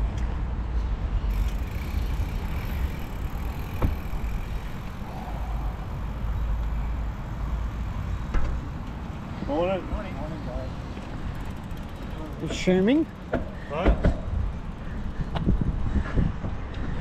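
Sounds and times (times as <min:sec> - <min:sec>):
wind buffeting microphone: 0:13.4 - 0:17.0.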